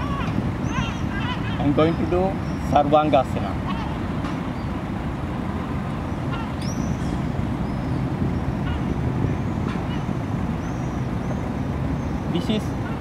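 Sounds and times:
city traffic rumble: 0.0s - 13.0s
high bird chirps: 6.6s - 8.9s.

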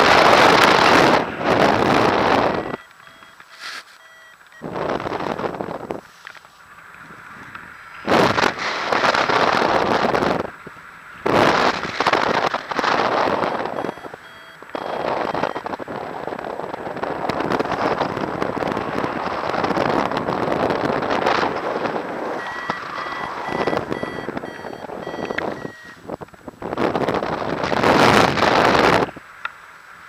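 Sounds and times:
wind rushing over microphone: 0.0s - 3.3s, 4.6s - 29.3s
variometer electronic beeps: 1.8s - 6.0s, 13.3s - 15.8s, 22.4s - 26.0s.

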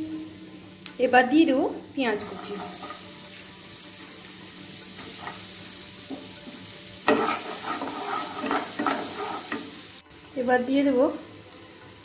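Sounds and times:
onions sizzling in butter: 0.0s - 12.0s
spatula scraping pan: 2.2s - 3.1s, 7.0s - 9.8s.

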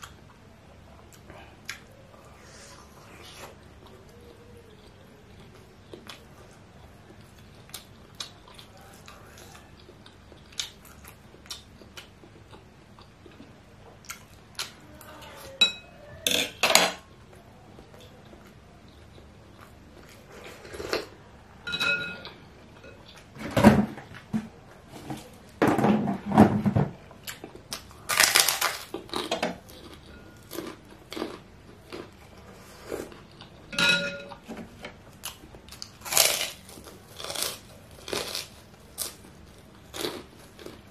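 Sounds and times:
chewing and eating: 0.0s - 15.6s, 17.1s - 21.3s, 27.1s - 40.9s
spoon clinking on ceramic bowl: 21.7s - 22.3s, 33.7s - 34.4s.

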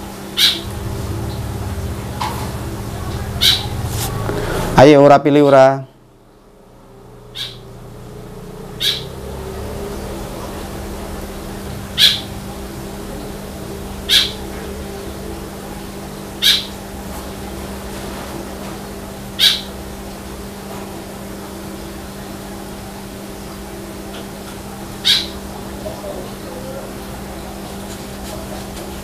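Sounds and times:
low steady hum: 0.0s - 29.0s
animal chirping: 0.4s - 0.7s, 3.2s - 3.9s, 7.3s - 7.7s, 8.8s - 9.2s, 11.9s - 12.3s, 14.1s - 14.4s, 16.4s - 16.8s, 19.4s - 19.7s, 25.0s - 25.4s.

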